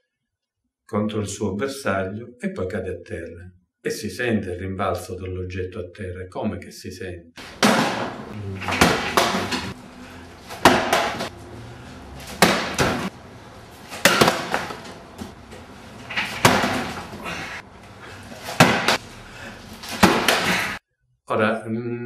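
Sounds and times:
object hitting cardboard boxes: 7.4 - 20.8.

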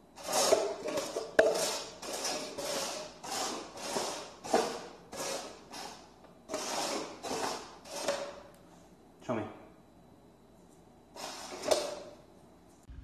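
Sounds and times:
plastic cups scraping on wooden floor: 0.2 - 8.5, 11.1 - 12.2.

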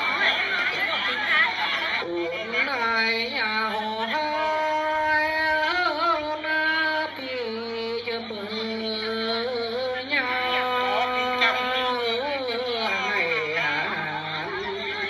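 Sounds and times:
person singing folk song: 1.9 - 15.0.

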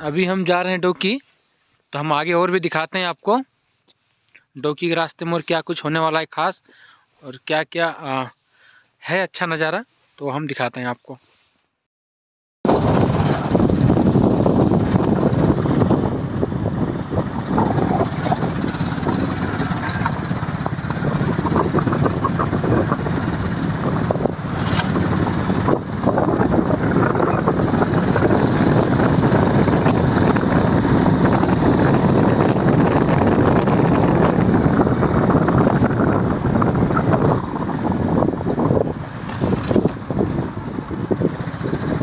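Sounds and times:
motorcycle engine: 12.7 - 42.0
wind on microphone: 12.7 - 42.0.

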